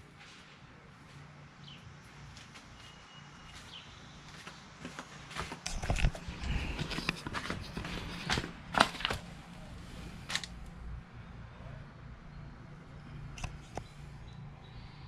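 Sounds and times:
flip-flop footsteps on concrete: 0:02.3 - 0:09.2.

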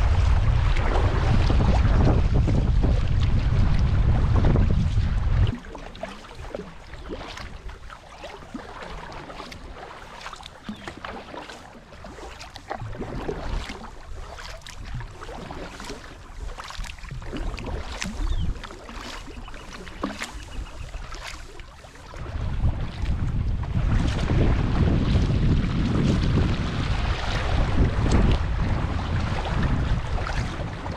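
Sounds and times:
low rumble: 0:00.0 - 0:05.7, 0:22.2 - 0:30.9
kayak paddle splashing water: 0:00.0 - 0:30.9.

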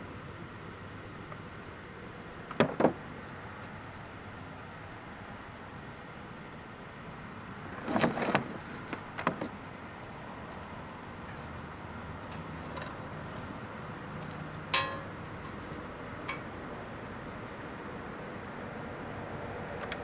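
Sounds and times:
sharp metallic clank with ring: 0:14.7 - 0:15.2.

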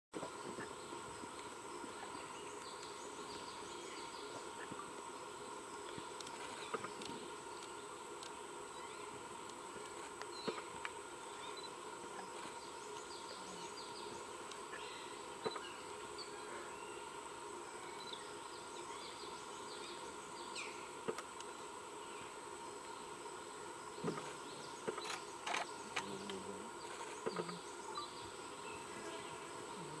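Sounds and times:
insects droning: 0:00.2 - 0:30.0
sharp clicks: 0:24.9 - 0:26.1.

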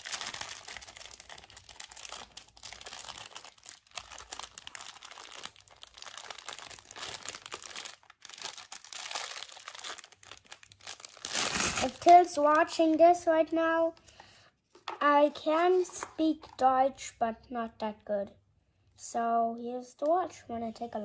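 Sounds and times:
plastic wrapping crinkling: 0:00.0 - 0:13.9.

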